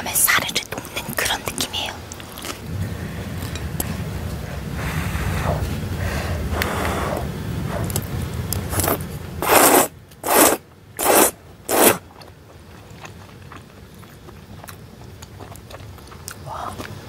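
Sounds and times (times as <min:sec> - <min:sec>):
low rumble: 0:00.9 - 0:09.4
loud scraping strokes: 0:08.7 - 0:12.0.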